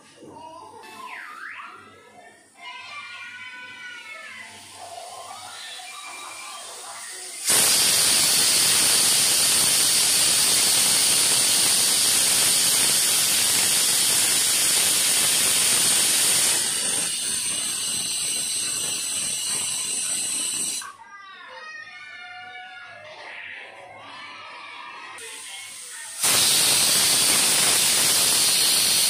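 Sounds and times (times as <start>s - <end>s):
pressure cooker whistle hissing: 6.4s - 20.8s, 25.2s - 29.0s.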